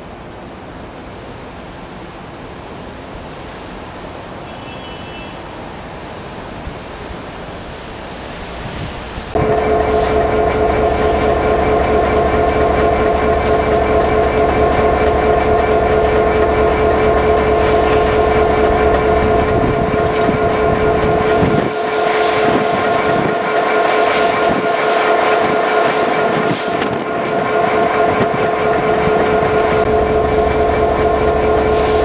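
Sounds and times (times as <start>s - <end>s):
train low rumble: 0.0s - 32.0s
train two-note whine: 9.2s - 32.0s.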